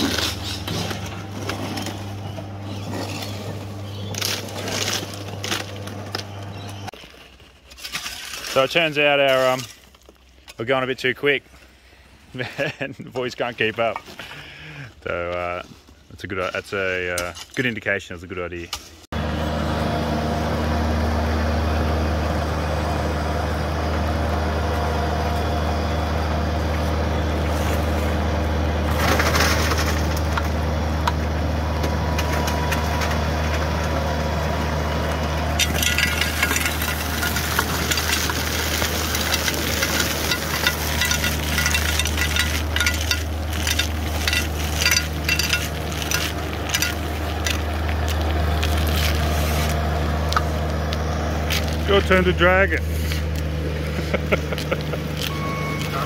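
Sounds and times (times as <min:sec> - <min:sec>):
conveyor belt and loader humming: 0:19.2 - 0:56.0
rubble rattling on conveyor belt: 0:28.9 - 0:30.5, 0:35.6 - 0:47.8.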